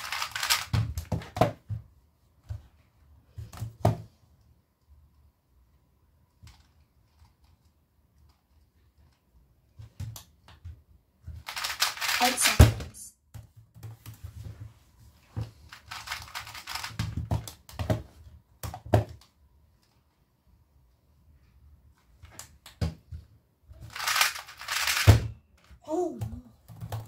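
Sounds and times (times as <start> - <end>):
puzzle cube clicking: 0.0 - 1.0, 11.4 - 12.6, 15.7 - 17.7, 23.9 - 25.2.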